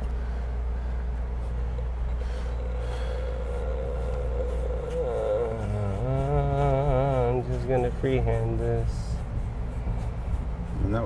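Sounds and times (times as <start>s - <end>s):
low background rumble: 0.0s - 11.0s
person speaking: 2.6s - 11.0s.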